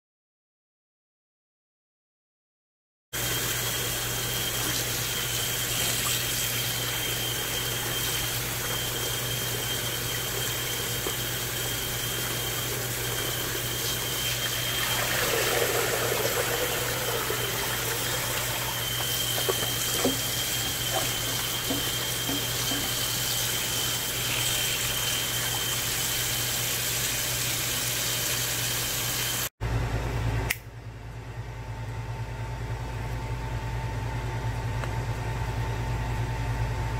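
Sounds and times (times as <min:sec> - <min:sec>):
tap water running: 0:03.2 - 0:29.5.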